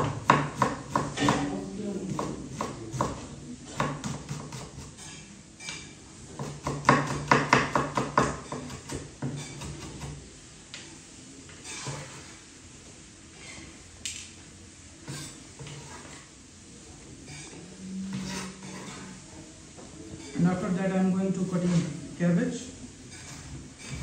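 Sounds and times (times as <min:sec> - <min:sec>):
knife chopping on wooden board: 0:00.0 - 0:01.5, 0:02.1 - 0:03.2, 0:03.8 - 0:05.0, 0:06.3 - 0:10.2.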